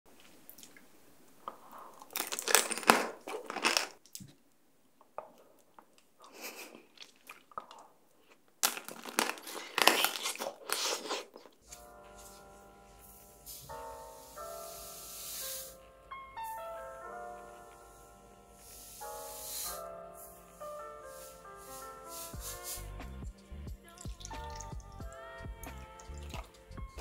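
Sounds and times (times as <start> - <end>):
quiet chewing: 0.1 - 11.8, 22.4 - 27.0
crunching hard candy shell: 1.6 - 4.2, 7.0 - 11.6
soft music: 11.6 - 27.0.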